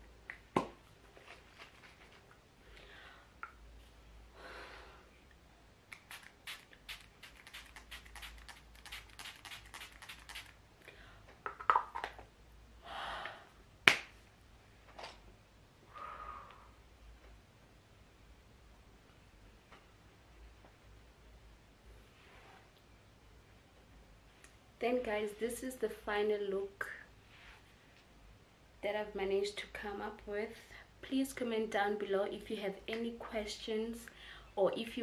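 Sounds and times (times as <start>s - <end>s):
spray bottle spritzing: 6.0s - 10.6s.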